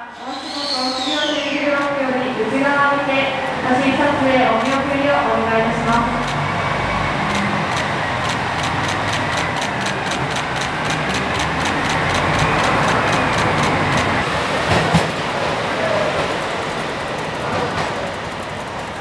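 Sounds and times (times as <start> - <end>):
diesel train engines running: 0.0 - 19.0
camera shutters clicking rapidly: 7.3 - 14.2.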